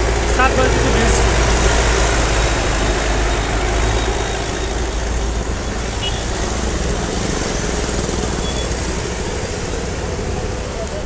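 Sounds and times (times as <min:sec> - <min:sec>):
traffic engines rumbling: 0:00.0 - 0:11.0.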